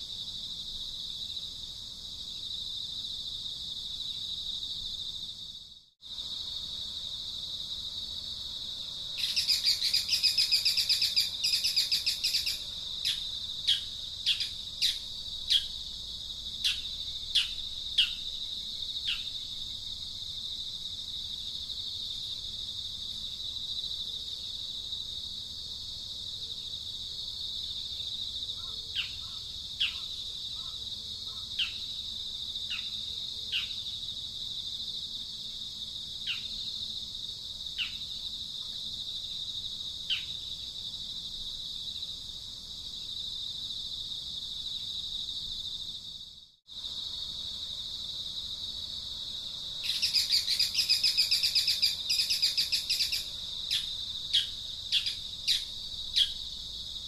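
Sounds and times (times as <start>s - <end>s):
high-pitched insect drone: 9.1s - 19.6s, 49.3s - 57.0s
bird chattering and chirping: 9.2s - 15.7s.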